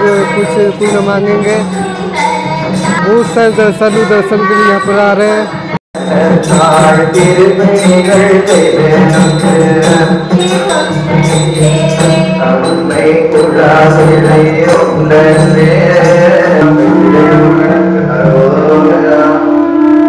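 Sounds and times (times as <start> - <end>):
wavering melody: 0.0 - 20.0
steady drone: 5.4 - 20.0.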